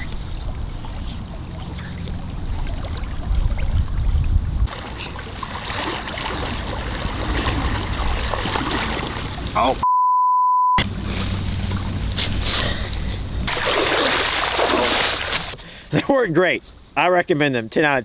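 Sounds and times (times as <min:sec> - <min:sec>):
legs wading through shallow water: 0:00.0 - 0:09.6
flowing river water rumble: 0:00.0 - 0:09.8, 0:10.9 - 0:15.6.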